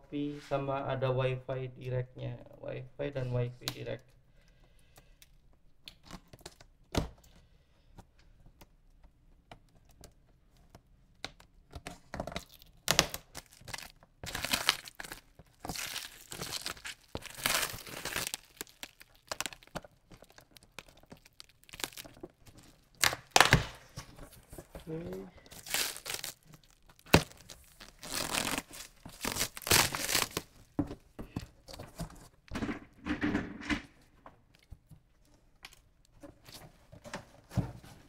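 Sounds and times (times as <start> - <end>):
plastic wrap crinkling and tearing: 12.3 - 30.8.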